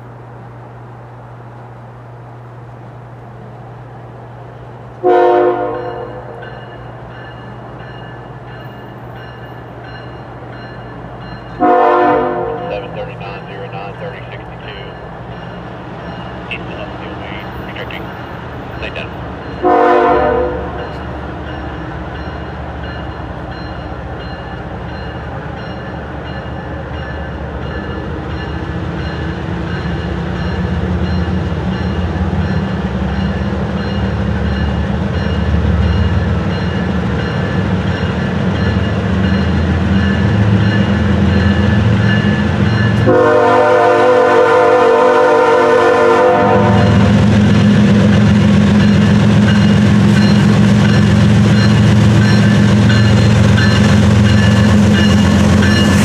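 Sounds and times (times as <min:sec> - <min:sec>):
diesel locomotive engine rumble: 0:00.0 - 0:56.0
train horn blasts: 0:05.0 - 0:06.4, 0:11.6 - 0:12.9, 0:19.6 - 0:21.0, 0:43.0 - 0:47.2.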